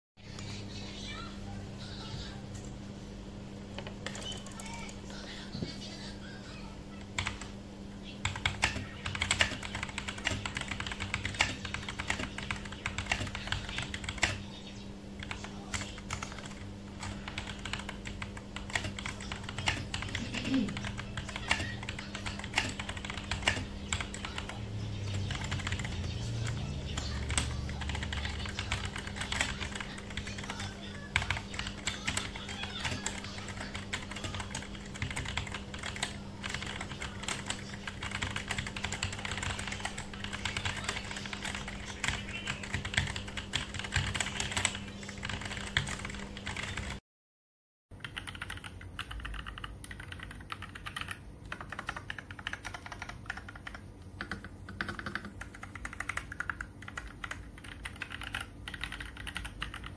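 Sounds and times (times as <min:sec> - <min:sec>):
steady low hum: 0:00.2 - 0:47.0
mechanical keyboard typing: 0:03.8 - 0:05.0, 0:07.2 - 0:07.6, 0:08.2 - 0:14.4, 0:15.2 - 0:47.0, 0:48.0 - 0:59.9.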